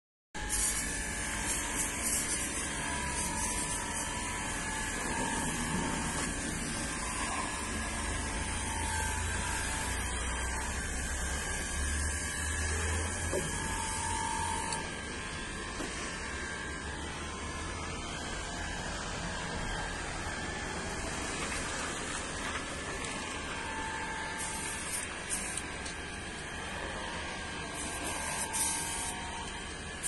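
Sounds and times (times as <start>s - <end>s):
aerosol can spray hissing: 0.5s - 4.2s, 24.4s - 25.6s, 27.8s - 29.2s.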